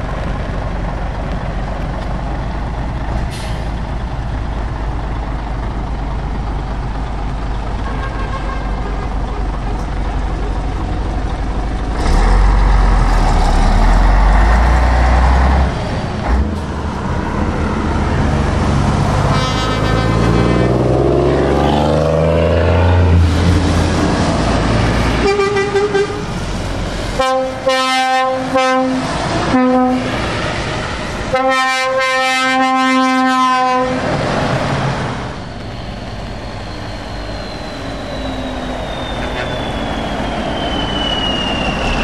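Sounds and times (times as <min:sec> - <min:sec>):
diesel engine accelerating: 0:00.0 - 0:07.9, 0:08.8 - 0:31.4, 0:33.5 - 0:42.0
trucks passing on wet road: 0:00.0 - 0:38.0
truck air horn blasts: 0:07.8 - 0:09.4, 0:19.2 - 0:20.8, 0:25.1 - 0:26.3, 0:27.1 - 0:30.2, 0:31.3 - 0:34.1.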